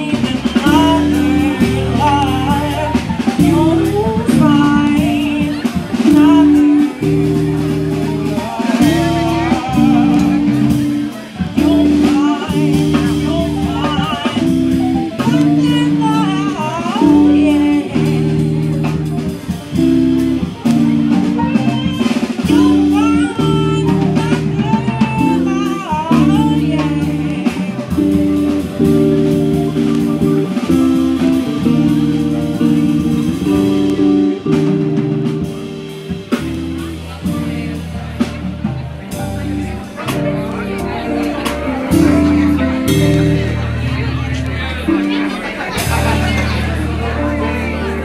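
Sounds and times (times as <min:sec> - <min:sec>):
woman singing: 0:00.0 - 0:19.6, 0:21.3 - 0:29.0
electric guitar chords: 0:00.0 - 0:48.0
piano chords: 0:00.0 - 0:48.0.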